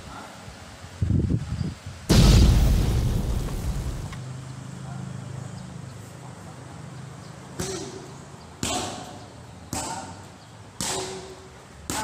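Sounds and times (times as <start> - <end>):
strikes slapping pads: 9.7 - 10.1, 10.8 - 11.3.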